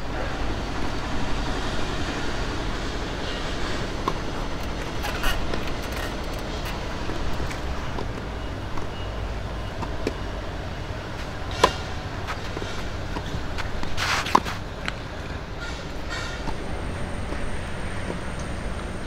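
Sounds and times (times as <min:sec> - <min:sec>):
low outdoor rumble: 0:00.0 - 0:19.0
tennis ball struck by rackets: 0:04.0 - 0:04.2.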